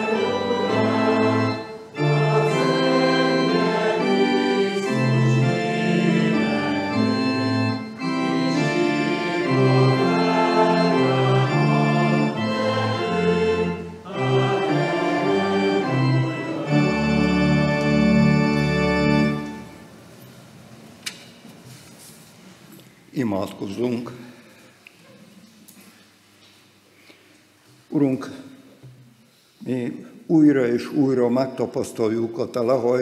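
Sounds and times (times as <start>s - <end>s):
church organ playing a hymn: 0.0s - 20.0s.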